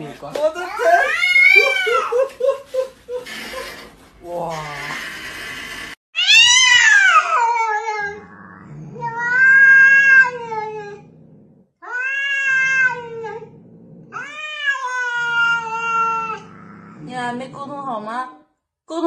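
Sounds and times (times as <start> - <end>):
cat meowing: 0.7 - 2.1, 6.2 - 11.0, 11.8 - 13.4, 14.1 - 16.6.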